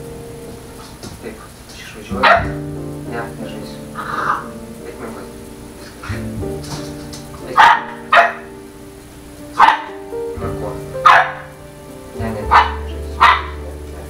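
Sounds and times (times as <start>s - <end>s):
background music with held notes: 0.0s - 14.0s
dog barking: 7.6s - 8.5s, 9.6s - 10.0s, 11.0s - 11.4s, 12.5s - 13.6s.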